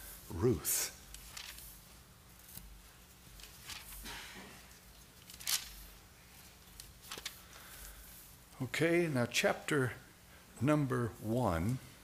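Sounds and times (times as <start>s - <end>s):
thin pages turning: 1.0s - 8.0s.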